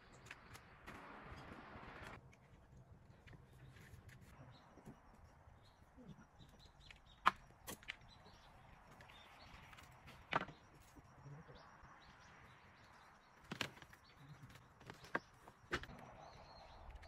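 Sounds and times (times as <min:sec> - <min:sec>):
faint birds chirping: 0:00.0 - 0:17.0.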